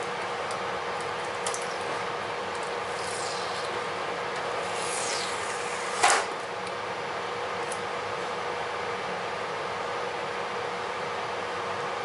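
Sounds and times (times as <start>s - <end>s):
shop noise hiss and hum: 0.0s - 12.0s
short loud rasp: 2.9s - 3.8s, 4.6s - 6.2s.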